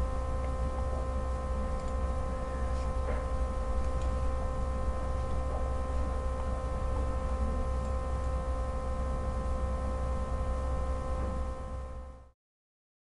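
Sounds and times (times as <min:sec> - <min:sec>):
electrical hum: 0:00.0 - 0:12.4.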